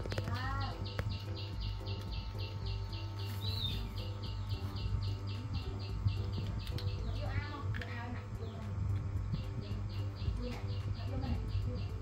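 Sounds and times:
low hum: 0:00.0 - 0:12.0
rapid high chirps: 0:00.0 - 0:12.0
rising-and-falling chirp: 0:00.8 - 0:06.4.

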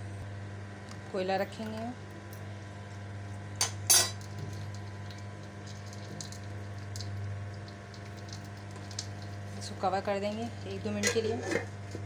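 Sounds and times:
steady low hum: 0:00.0 - 0:12.0
metal tongs clinking steel bowl: 0:10.9 - 0:11.6.

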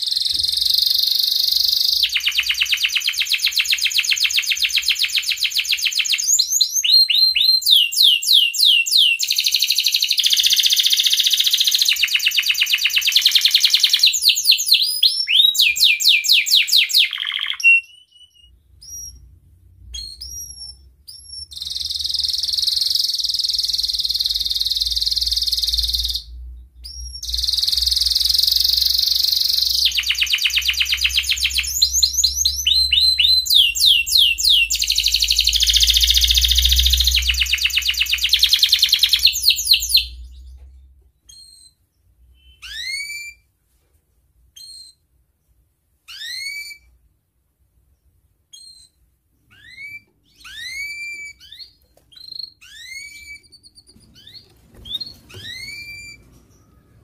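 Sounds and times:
canary singing trills: 0:00.0 - 0:40.6, 0:41.2 - 0:43.4, 0:46.1 - 0:47.0, 0:48.0 - 0:57.0.

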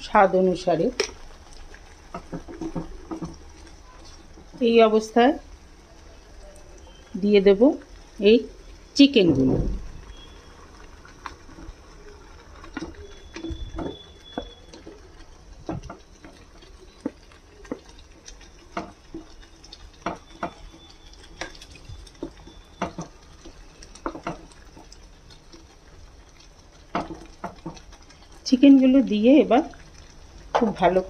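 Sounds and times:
gravy simmering: 0:00.0 - 0:31.0.

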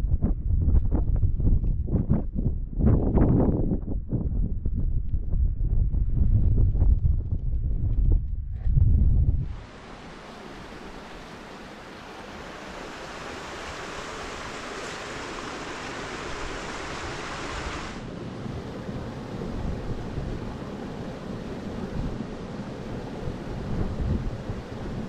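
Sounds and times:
wind buffeting microphone: 0:00.0 - 0:25.0
outdoor rushing hiss: 0:09.4 - 0:21.2.

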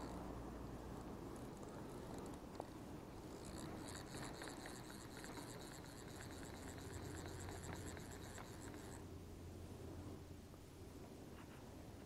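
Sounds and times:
fly reel ratchet ticking: 0:00.0 - 0:00.2, 0:01.0 - 0:09.0.

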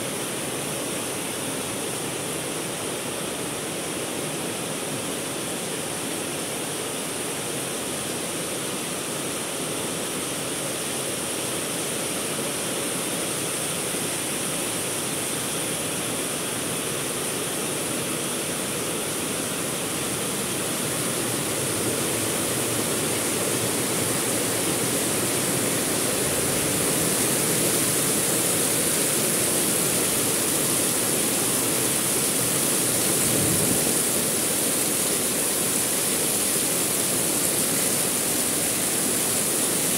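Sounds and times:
heavy rain: 0:11.2 - 0:39.9.

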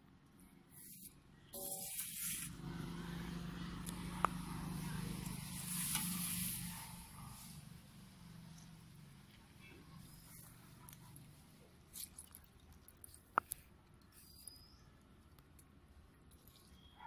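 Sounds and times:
passing motor vehicle hum: 0:02.0 - 0:11.5
plastic colander on steel pot: 0:05.2 - 0:06.7.

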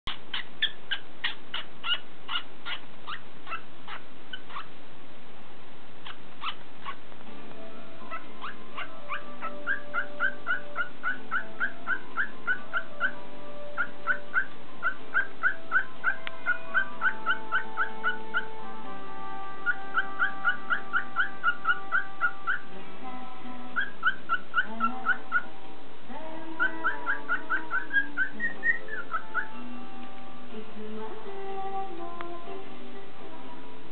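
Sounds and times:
cockatiel chirping: 0:00.1 - 0:04.7, 0:06.0 - 0:07.0, 0:08.0 - 0:18.6, 0:19.6 - 0:22.7, 0:23.7 - 0:25.5, 0:26.6 - 0:30.1
background music: 0:07.2 - 0:33.9.

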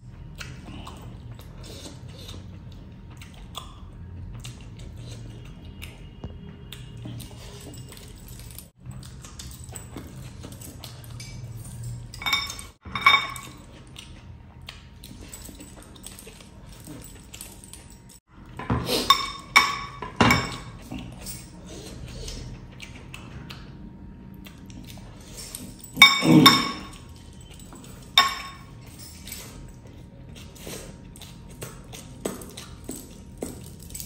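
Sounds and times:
wet eating and chewing: 0:00.0 - 0:19.5, 0:20.5 - 0:33.9
metal rings clinking on glass bowl: 0:11.2 - 0:13.6, 0:19.0 - 0:21.5, 0:25.4 - 0:29.6.

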